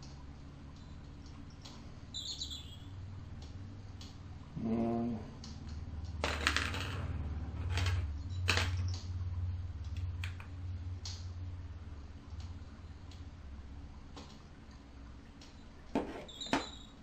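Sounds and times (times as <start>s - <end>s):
steady low hum: 0.0s - 17.0s
short pitched squeak: 16.2s - 17.0s.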